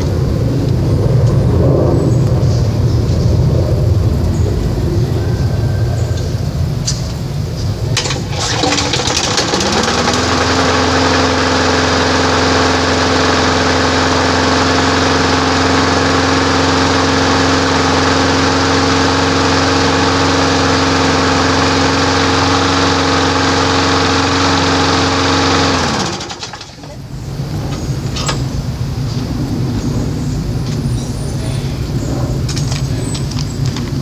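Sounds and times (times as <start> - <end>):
lawn mower engine running: 7.8 - 29.7.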